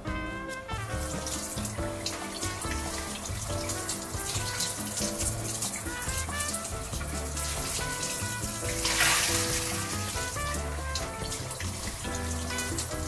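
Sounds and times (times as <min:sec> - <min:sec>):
background music with bass: 0:00.0 - 0:13.0
tap water running into sink: 0:00.1 - 0:13.0
short burst of hiss: 0:08.8 - 0:09.9.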